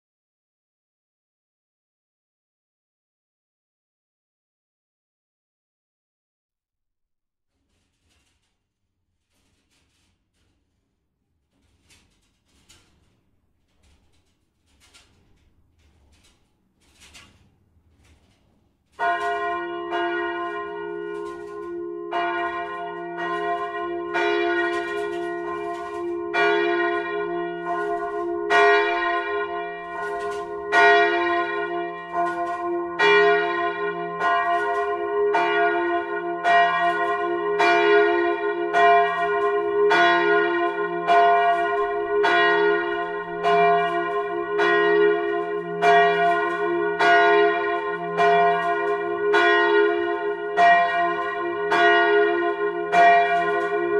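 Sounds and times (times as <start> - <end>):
church bell ringing: 19.0 - 53.9.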